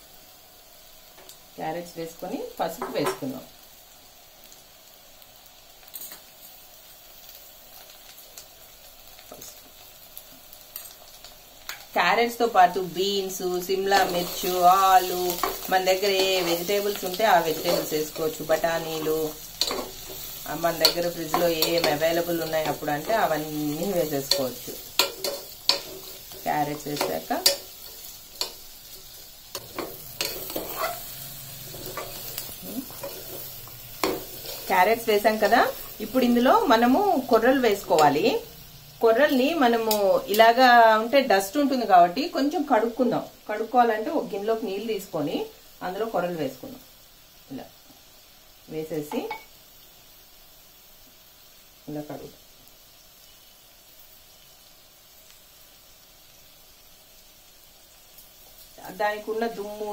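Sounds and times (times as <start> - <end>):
onions sizzling in oil: 0.0 - 59.9
spatula scraping pan: 13.9 - 36.0.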